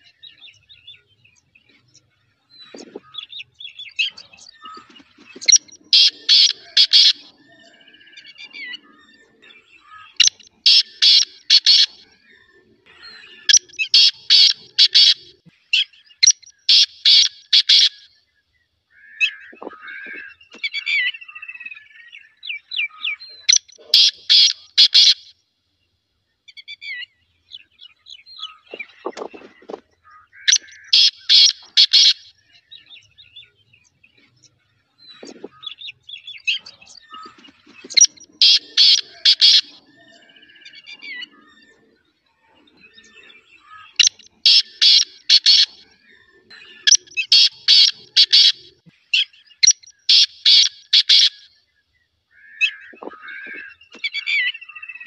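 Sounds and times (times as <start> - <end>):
partridge calling: 0.0 - 18.1, 18.9 - 25.3, 26.5 - 33.6, 34.2 - 51.6, 52.3 - 55.0
faint bird chirps: 0.0 - 25.4, 26.2 - 55.0.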